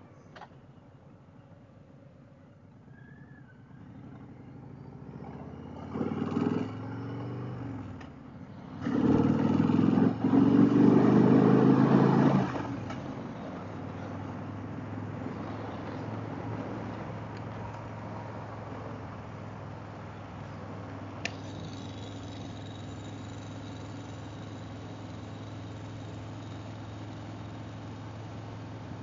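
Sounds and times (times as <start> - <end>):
motorcycle engine accelerating: 3.6 - 16.6, 20.8 - 29.0.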